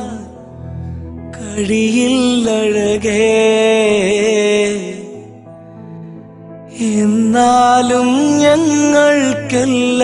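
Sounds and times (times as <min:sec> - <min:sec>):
person singing: 0:01.3 - 0:05.5, 0:06.7 - 0:10.0.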